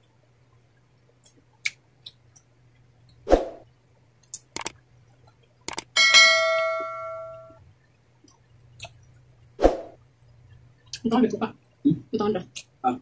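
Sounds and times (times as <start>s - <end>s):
faint low hum: 0.0s - 13.0s
quick clicks: 4.4s - 4.8s, 5.7s - 5.9s
bright bell ding: 6.0s - 7.6s.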